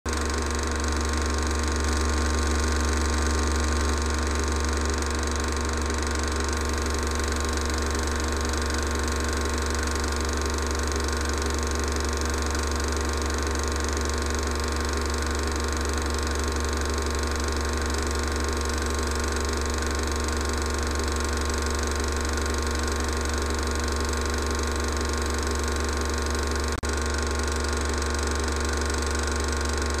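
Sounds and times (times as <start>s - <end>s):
film projector whirring: 0.1s - 30.0s.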